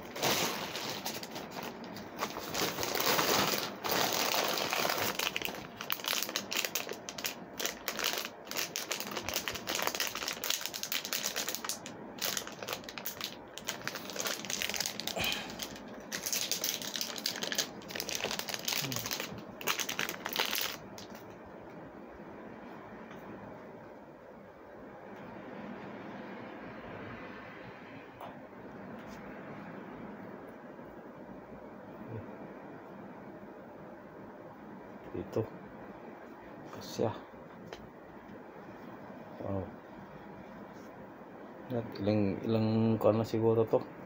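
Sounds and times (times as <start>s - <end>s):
packaging wrap crinkling: 0.0s - 21.3s.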